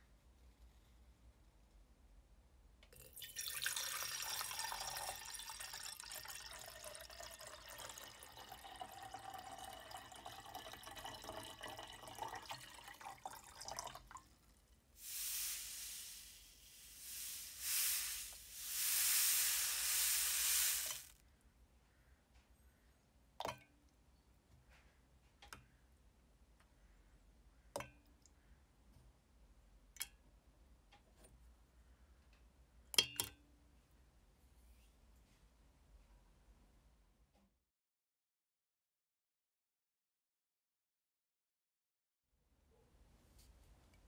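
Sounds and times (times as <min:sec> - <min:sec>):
water pouring into glass: 0:02.9 - 0:14.3, 0:15.0 - 0:21.1
hissing noise swells: 0:15.0 - 0:21.1.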